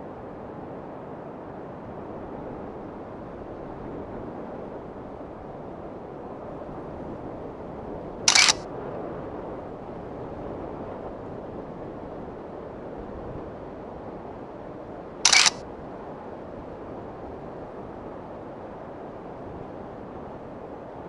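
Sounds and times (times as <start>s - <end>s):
camera shutter click: 8.3s - 8.6s, 15.3s - 15.6s.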